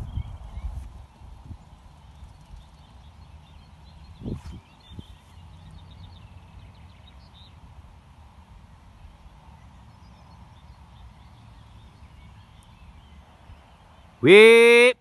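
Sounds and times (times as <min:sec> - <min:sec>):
wind rumbling on microphone: 0:00.0 - 0:10.5.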